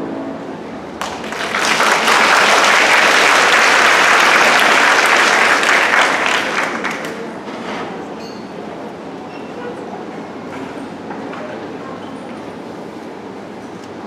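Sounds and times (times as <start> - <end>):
audience applauding: 1.0 - 7.4.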